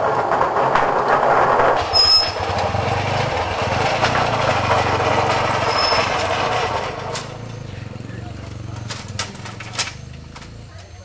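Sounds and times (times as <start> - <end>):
engine running: 0.0 - 11.0
brief high squeal: 1.9 - 2.4, 5.6 - 6.2.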